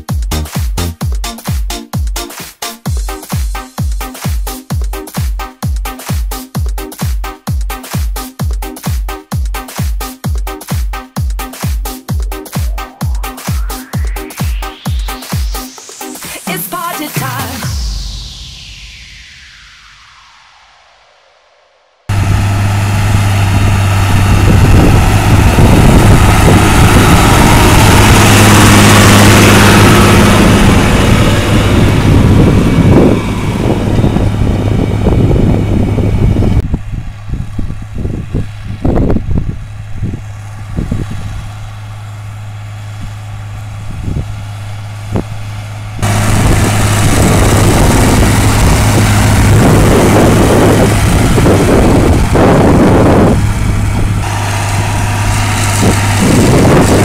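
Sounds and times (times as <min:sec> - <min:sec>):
tractor diesel engine under load: 0:22.1 - 0:57.0.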